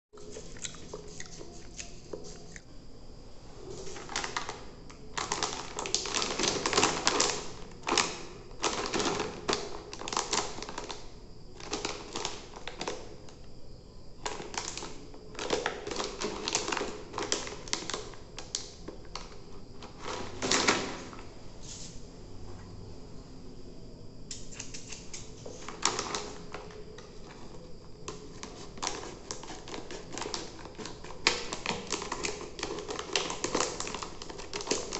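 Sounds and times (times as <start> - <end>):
plastic snack packet crinkling: 3.8 - 13.2, 14.2 - 20.7, 25.6 - 34.9.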